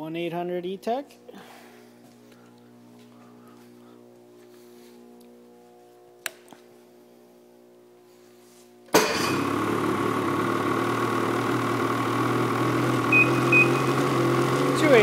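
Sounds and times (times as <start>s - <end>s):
snowmobile engine starting and idling: 8.9s - 15.0s.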